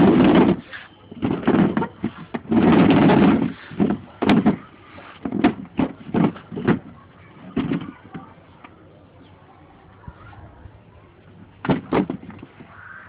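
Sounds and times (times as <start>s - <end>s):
plastic chair scraping on concrete: 0.0s - 8.2s, 11.6s - 12.6s.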